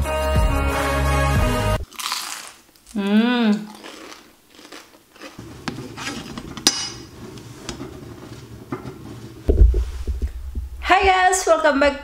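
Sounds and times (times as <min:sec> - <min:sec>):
low steady hum: 0:05.4 - 0:12.0.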